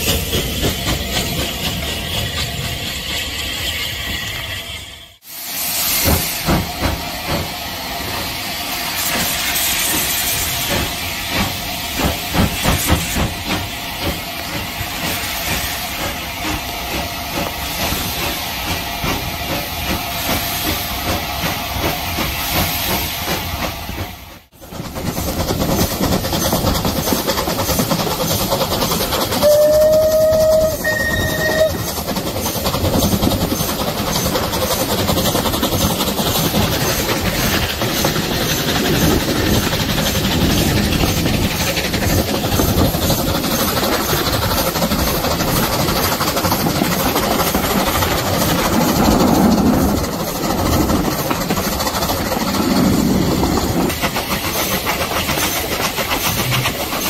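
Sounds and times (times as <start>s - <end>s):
steam hissing: 0.0s - 57.0s
steam locomotive exhaust beats: 0.0s - 57.0s
steam whistle: 29.4s - 31.9s.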